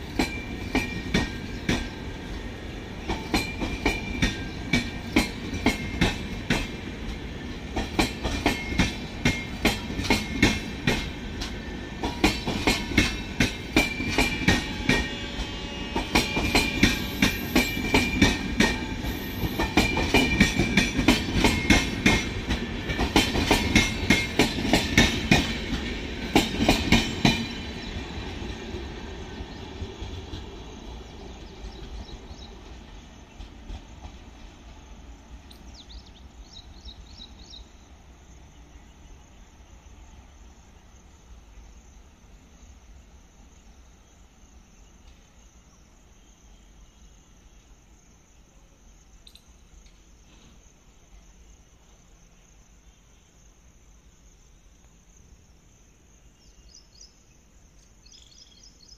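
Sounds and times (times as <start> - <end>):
train wheels clicking over rail joints: 0.0 - 37.6.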